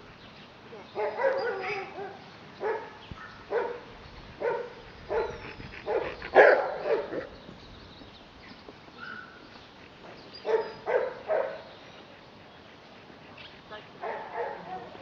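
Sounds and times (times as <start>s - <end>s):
puppy barking: 1.0s - 3.8s, 4.4s - 7.3s, 10.4s - 11.6s, 14.0s - 15.0s.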